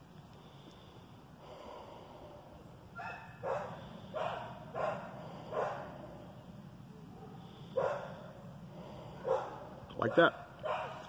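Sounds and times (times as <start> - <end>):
steady low hum: 0.0 - 11.0
dog barking: 3.0 - 5.9, 7.2 - 8.2, 9.2 - 11.0.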